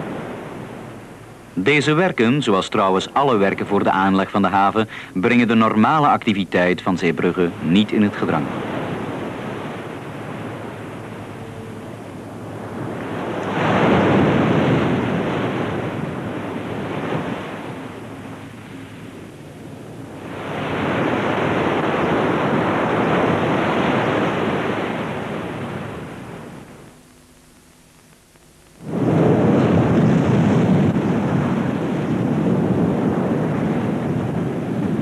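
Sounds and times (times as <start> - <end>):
sea waves washing: 0.0 - 27.0, 28.8 - 35.0.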